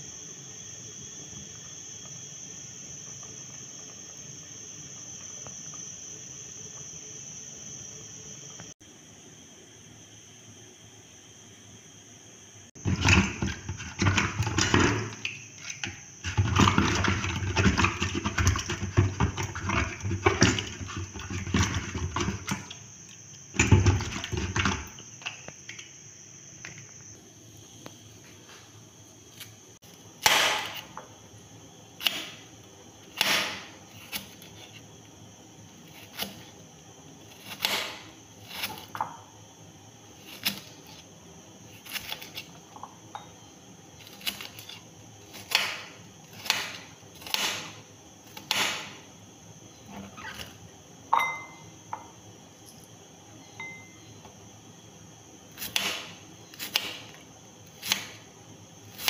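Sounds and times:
knife slicing onion: 0:30.2 - 0:31.0, 0:32.0 - 0:34.9, 0:35.8 - 0:36.6, 0:37.2 - 0:39.1, 0:40.1 - 0:42.6, 0:44.0 - 0:49.0, 0:55.5 - 0:58.3.

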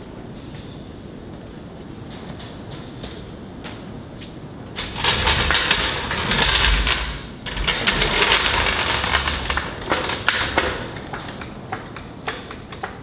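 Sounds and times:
floor jack rolling on concrete: 0:04.7 - 0:13.0.

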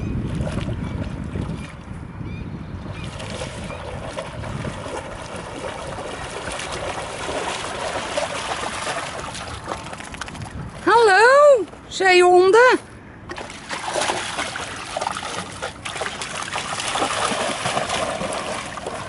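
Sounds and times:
dog splashing through water: 0:02.9 - 0:10.6, 0:13.3 - 0:19.0.

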